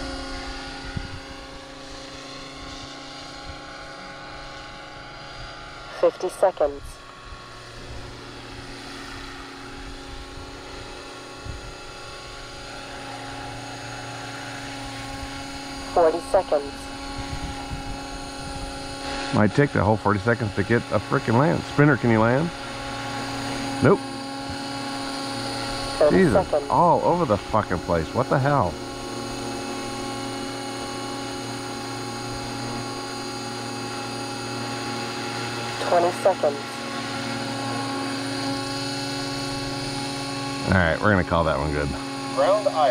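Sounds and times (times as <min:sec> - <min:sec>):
rc helicopter rotor whine: 0:00.0 - 0:42.9
wind on microphone: 0:00.1 - 0:01.6, 0:09.8 - 0:12.0, 0:16.8 - 0:19.0.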